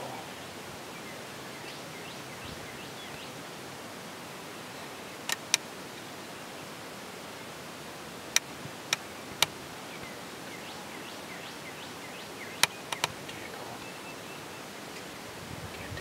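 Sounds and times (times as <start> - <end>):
birds chirping faintly: 0.0 - 16.0
steady hiss: 0.0 - 16.0
sharp clicks: 5.3 - 5.6, 12.6 - 13.4.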